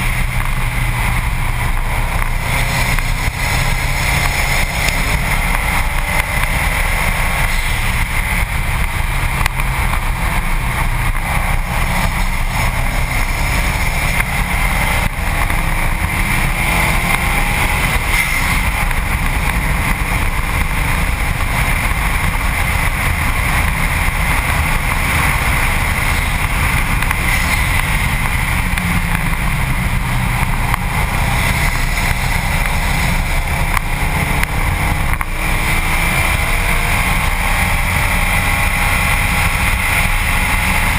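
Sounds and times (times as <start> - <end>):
car engine: 0.0 - 40.9
road noise: 0.0 - 40.9
wind rush: 0.0 - 40.9.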